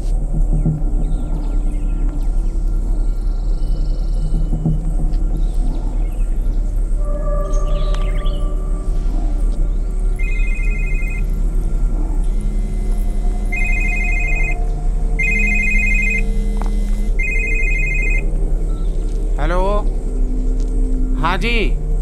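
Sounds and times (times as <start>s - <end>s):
low steady drone: 0.0s - 22.0s
mobile phone ringing: 10.2s - 11.3s, 12.3s - 14.6s, 15.2s - 18.3s.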